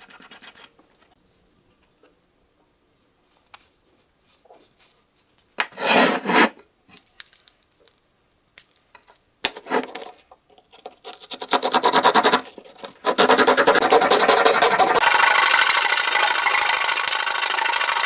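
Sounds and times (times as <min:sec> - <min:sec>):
scraping rub on tabletop: 0:05.7 - 0:06.6
saw blade cutting wood: 0:05.8 - 0:06.6, 0:13.0 - 0:17.3.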